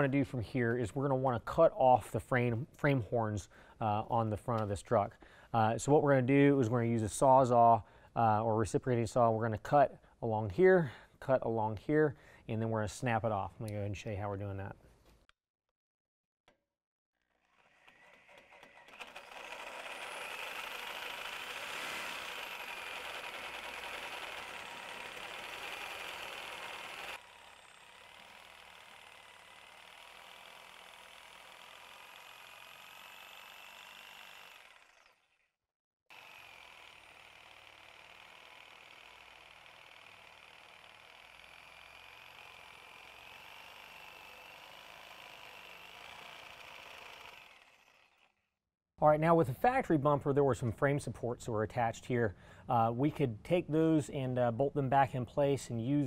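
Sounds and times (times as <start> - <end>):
reciprocating saw cutting metal: 17.2 - 35.5, 36.1 - 48.4.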